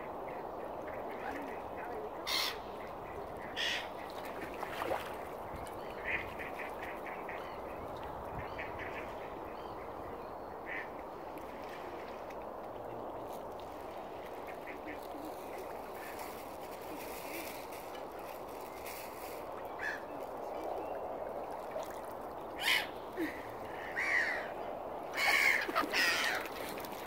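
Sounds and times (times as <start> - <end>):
outdoor background noise: 0.0 - 27.0.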